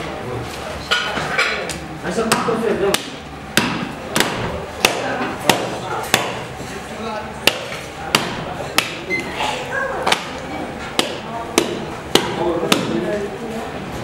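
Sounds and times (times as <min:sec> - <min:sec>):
cleaver chopping on wooden block: 0:02.3 - 0:06.4, 0:07.4 - 0:09.0, 0:11.0 - 0:13.0.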